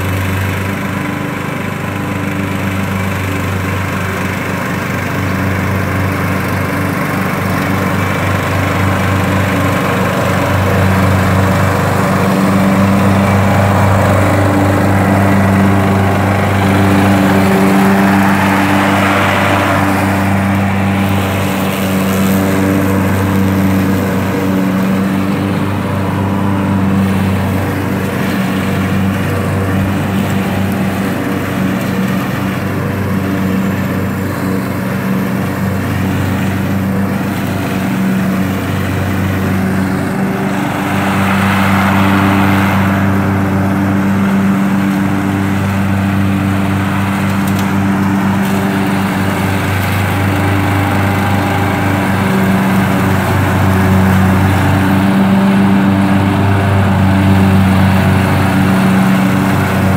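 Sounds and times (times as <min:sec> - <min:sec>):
riding lawn mower running: 0:00.0 - 0:59.9
brief rushing swell: 0:39.4 - 0:45.8.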